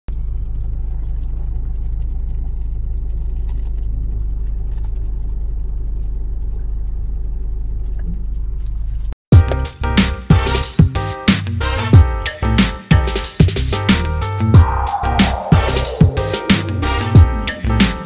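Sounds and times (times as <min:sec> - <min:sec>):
car cabin engine and road rumble: 0:00.1 - 0:09.2.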